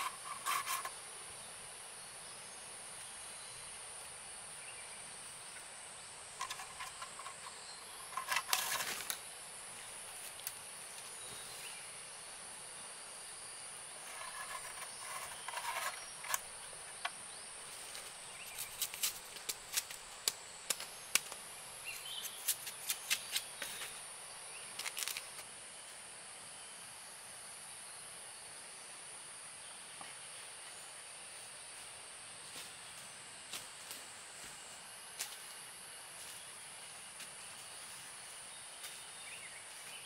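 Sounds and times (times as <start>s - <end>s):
bamboo sheaths crackling: 0.0s - 0.9s, 6.4s - 9.2s, 14.0s - 16.7s, 17.8s - 21.4s, 22.0s - 23.8s, 24.8s - 25.4s.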